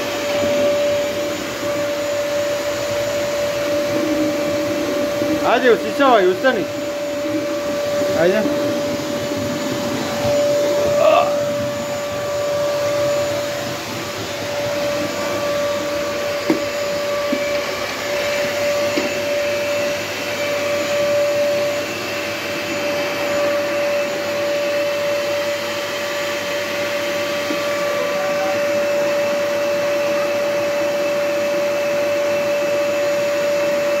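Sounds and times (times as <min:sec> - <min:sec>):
vacuum cleaner running: 0:00.0 - 0:34.0.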